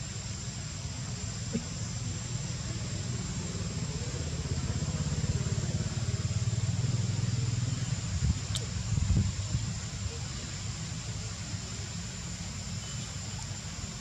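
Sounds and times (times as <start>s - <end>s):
engine idling: 0.0s - 14.0s
thin high-pitched whine: 7.1s - 14.0s.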